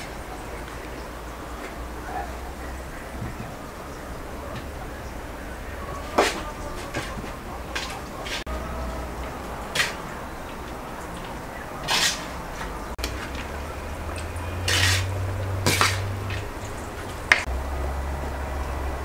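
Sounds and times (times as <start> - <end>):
metal spoon scraping metal basin: 6.0 - 13.3, 14.0 - 16.7.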